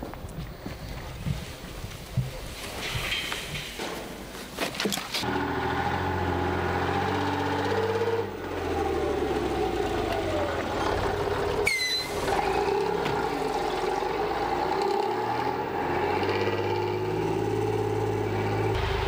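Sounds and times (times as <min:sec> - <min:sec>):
truck engine running: 0:05.2 - 0:19.0
high squeal dropping in pitch: 0:11.6 - 0:12.7.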